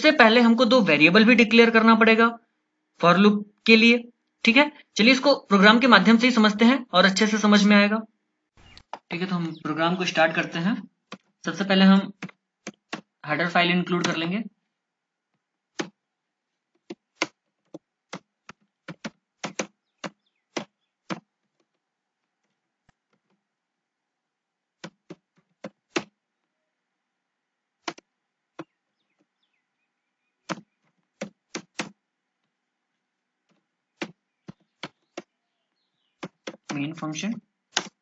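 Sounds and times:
computer keyboard keystrokes: 18.1s - 21.2s.

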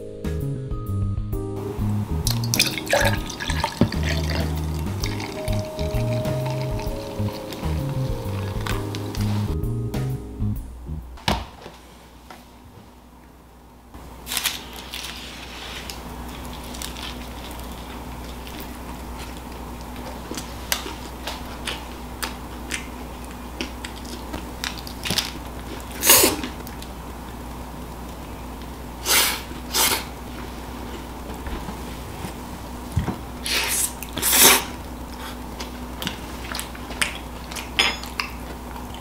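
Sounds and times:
low hum: 0.0s - 11.2s
biting and chewing pizza: 14.3s - 27.0s, 33.4s - 39.0s.

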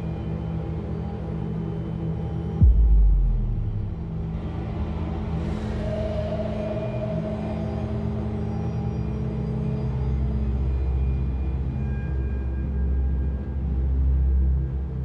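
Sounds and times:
low droning score: 0.0s - 15.0s
deep boom dropping in pitch: 2.6s - 4.5s.

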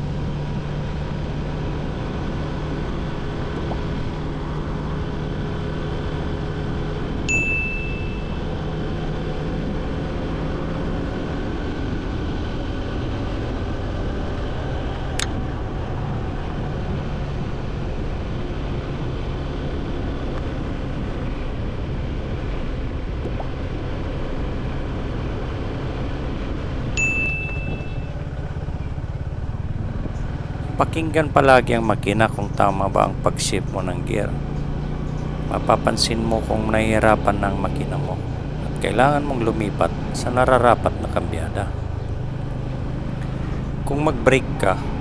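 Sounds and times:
motorcycle engine running: 0.0s - 45.0s
road and wind noise: 0.0s - 45.0s
short bright chime: 7.3s - 8.4s, 27.0s - 28.1s.

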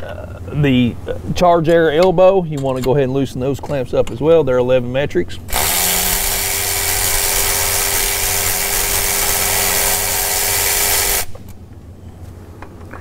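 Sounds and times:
power ratchet running: 5.5s - 11.4s.

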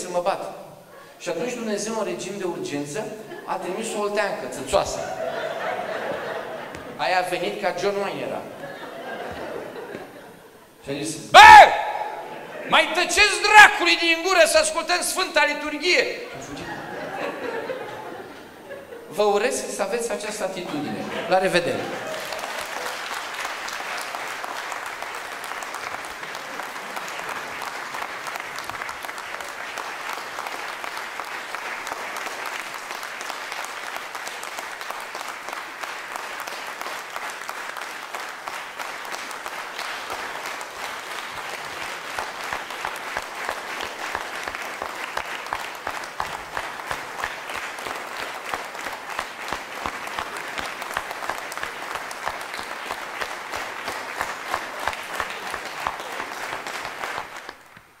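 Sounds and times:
audience applauding: 5.0s - 10.5s, 20.8s - 58.0s.

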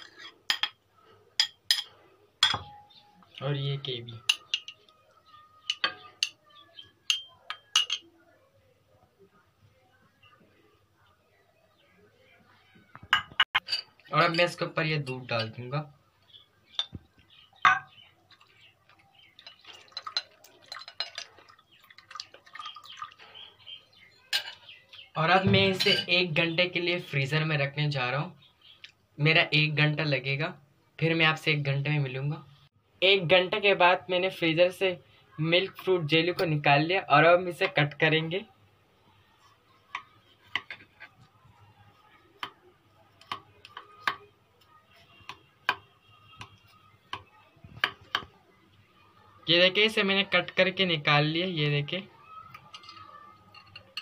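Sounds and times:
glass bowl knock: 2.4s - 2.9s, 13.1s - 13.5s, 17.6s - 18.0s
milk dripping and splashing: 18.3s - 23.6s.

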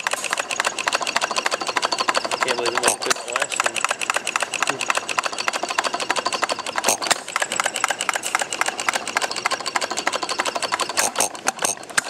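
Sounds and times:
small engine clicking rapidly: 0.0s - 12.0s.

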